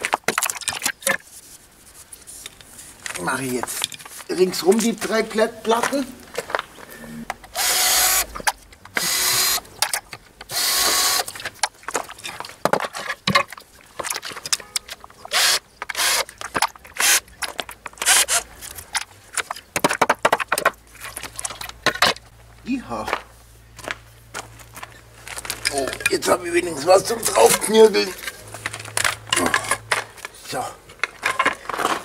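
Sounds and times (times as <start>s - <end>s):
cordless drill running: 7.5s - 8.3s, 9.0s - 9.6s, 10.5s - 11.3s, 15.3s - 16.3s, 18.0s - 18.4s.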